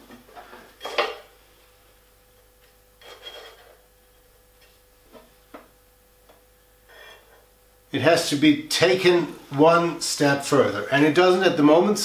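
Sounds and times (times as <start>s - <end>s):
metal gauge scraping over table: 3.0s - 3.8s.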